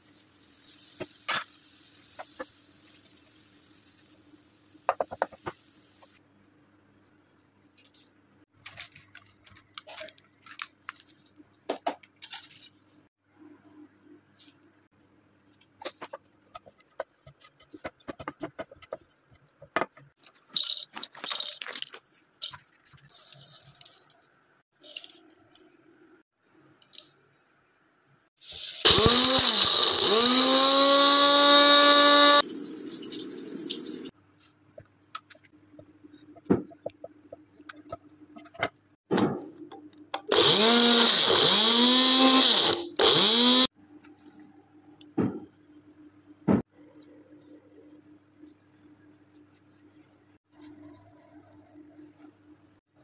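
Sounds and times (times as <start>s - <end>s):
electric blender grinding seeds: 28.8s - 32.4s, 40.3s - 43.7s.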